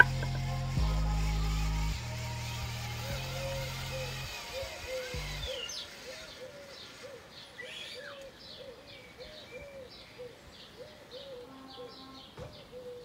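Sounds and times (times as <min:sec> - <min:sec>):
high bird chirps: 0:00.0 - 0:00.4, 0:03.2 - 0:13.0
low bird calls: 0:00.0 - 0:00.5, 0:03.2 - 0:13.0
background music: 0:00.0 - 0:06.4.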